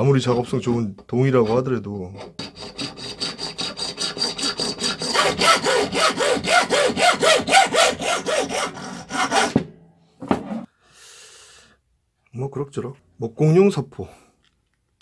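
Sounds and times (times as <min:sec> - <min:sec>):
hacksaw cutting metal rod: 0:00.2 - 0:09.7.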